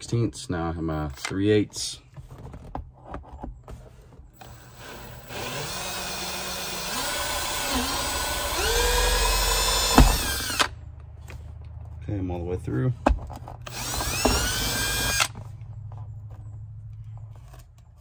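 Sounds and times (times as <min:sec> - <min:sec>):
power drill motor whine: 0:04.4 - 0:10.7, 0:13.6 - 0:15.4.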